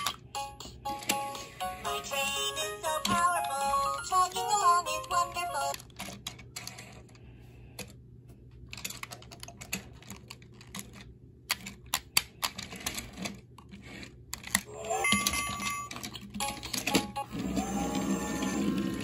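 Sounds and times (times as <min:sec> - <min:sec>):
electronic toy tune: 0:00.4 - 0:05.6, 0:14.8 - 0:18.6
plastic toy train clicking: 0:08.7 - 0:19.0.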